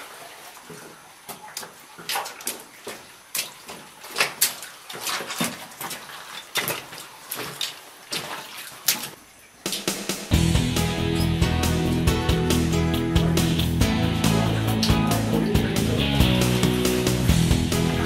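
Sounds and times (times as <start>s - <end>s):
boots splashing through water: 0.0s - 10.0s.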